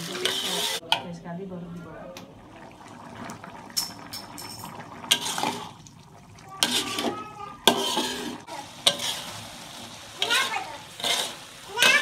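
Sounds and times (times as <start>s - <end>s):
metal spatula scraping a wok: 0.0s - 0.8s, 6.6s - 9.5s, 10.2s - 12.0s
liquid sloshing: 2.2s - 9.3s.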